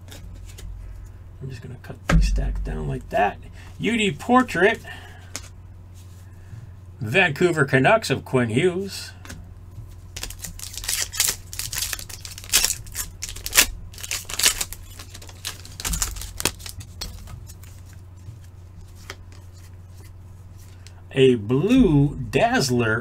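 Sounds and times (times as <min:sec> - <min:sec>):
low electrical hum: 0:00.0 - 0:23.0
foil wrapper tearing and rustling: 0:10.1 - 0:17.9.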